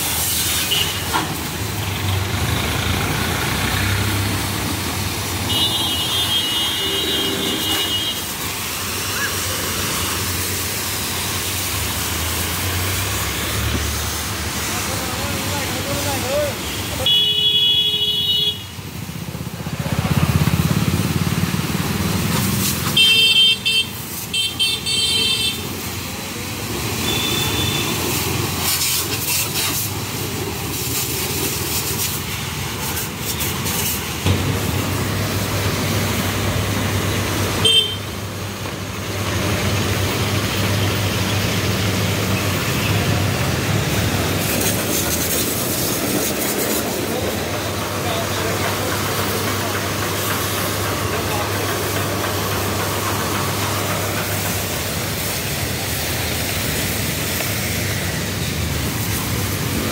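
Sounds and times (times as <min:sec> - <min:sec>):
spray gun jetting water: 0:00.0 - 0:59.9
vehicle horn toots: 0:00.6 - 0:01.1, 0:05.5 - 0:08.3, 0:16.6 - 0:18.7, 0:22.9 - 0:25.6, 0:27.0 - 0:28.0, 0:37.6 - 0:38.1.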